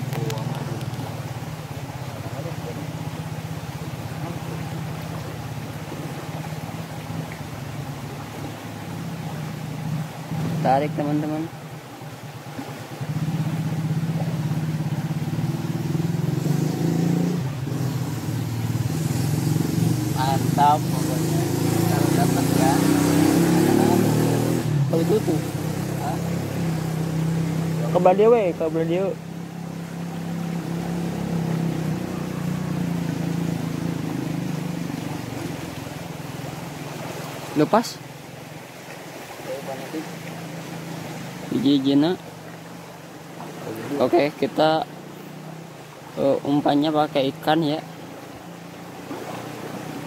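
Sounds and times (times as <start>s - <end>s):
small engine running: 13.2s - 37.2s.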